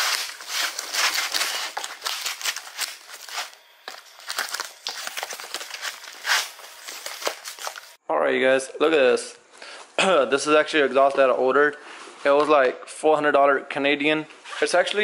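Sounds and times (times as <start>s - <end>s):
cardboard scraping and ripping: 0.0s - 8.0s
plastic film crinkling: 0.0s - 8.0s.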